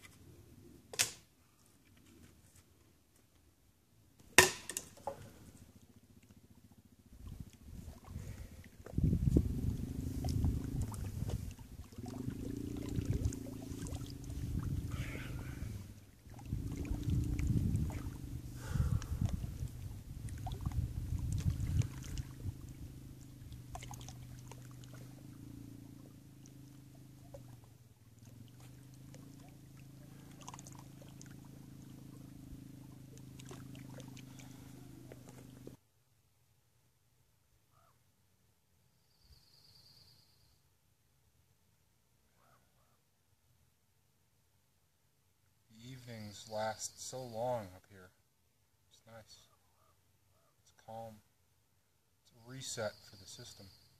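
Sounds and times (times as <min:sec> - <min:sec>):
low hum: 0:04.0 - 0:35.8
low wind rumble: 0:06.8 - 0:26.2
lapping water: 0:07.1 - 0:35.8.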